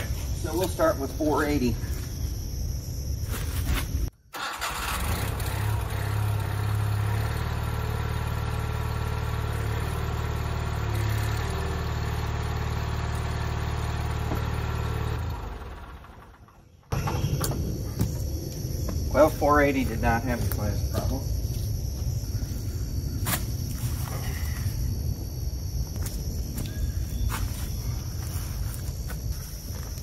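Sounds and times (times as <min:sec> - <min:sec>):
garden tractor engine running: 0:04.4 - 0:18.3.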